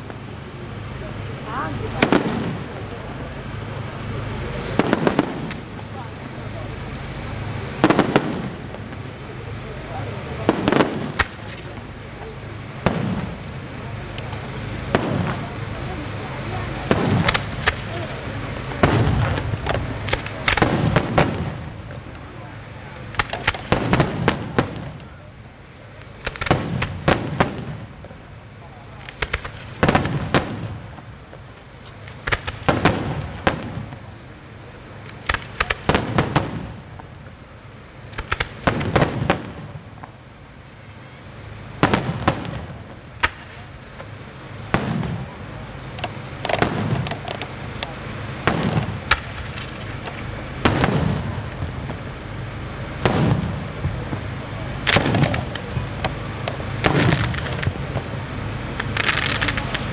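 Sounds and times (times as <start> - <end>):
firework shells bursting: 2.0 - 9.3, 10.1 - 25.2, 25.8 - 34.3, 34.9 - 40.6, 41.4 - 59.9
sharp bangs with rolling echo: 48.4 - 49.9, 53.0 - 54.2, 54.8 - 55.7, 56.7 - 58.0.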